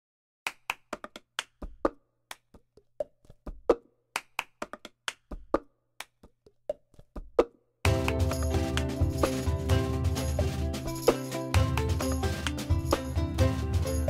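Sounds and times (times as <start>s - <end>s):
cup game percussion: 5.6s - 14.0s.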